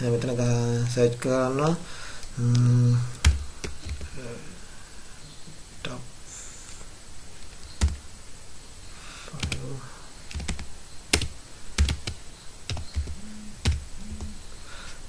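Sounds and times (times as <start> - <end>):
keyboard keystrokes: 10.3 - 14.3.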